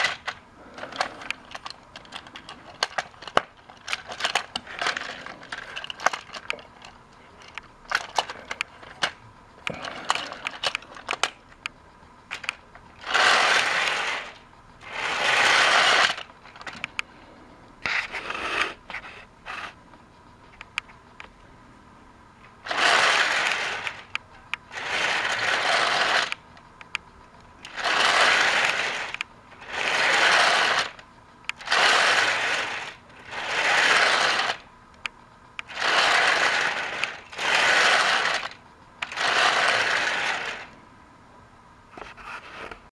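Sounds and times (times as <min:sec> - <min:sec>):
plastic toy train clattering: 0:00.0 - 0:11.7, 0:12.3 - 0:17.1, 0:22.6 - 0:40.8
hissing bursts: 0:13.0 - 0:16.4, 0:22.6 - 0:26.5, 0:27.6 - 0:34.7, 0:35.6 - 0:40.8.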